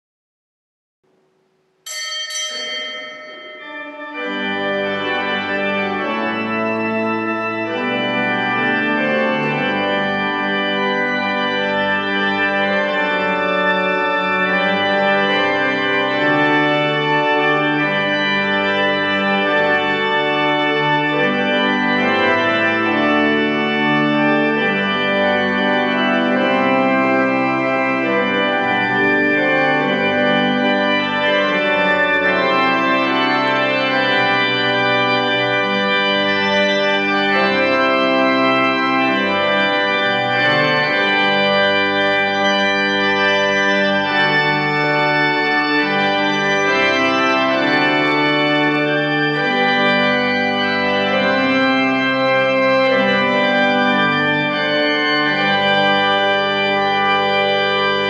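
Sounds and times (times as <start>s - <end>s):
bright ringing sound: 1.8s - 4.4s
church organ chords: 1.9s - 58.0s.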